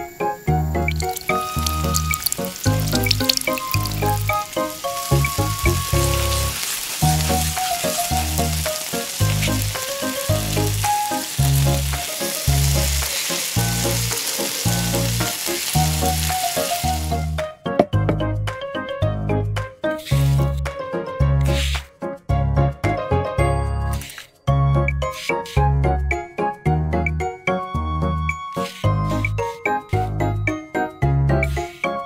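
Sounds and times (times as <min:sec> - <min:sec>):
egg sizzling in pan: 0:00.7 - 0:17.3.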